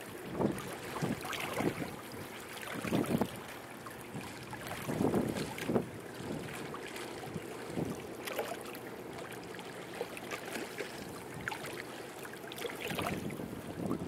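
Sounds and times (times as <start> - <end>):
river water lapping: 0.0 - 14.0
wind buffeting microphone: 0.1 - 8.1, 12.8 - 14.0.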